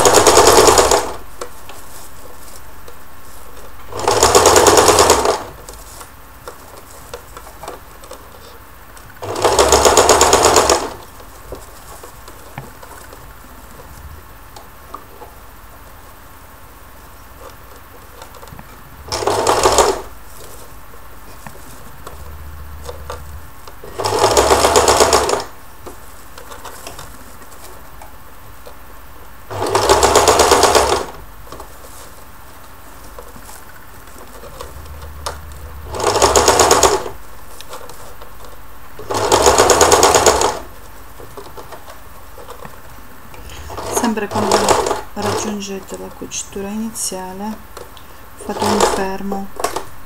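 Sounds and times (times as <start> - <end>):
sewing machine stitching: 0.0 - 1.2, 3.8 - 5.8, 9.2 - 11.6, 18.2 - 20.2, 22.0 - 25.6, 29.5 - 31.2, 34.4 - 37.2, 39.0 - 40.7, 43.4 - 45.8, 48.4 - 49.8.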